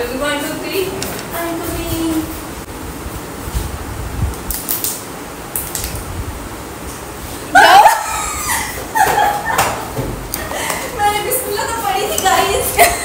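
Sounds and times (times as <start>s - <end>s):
woman shrieking: 7.5s - 9.0s
woman laughing: 7.5s - 13.0s.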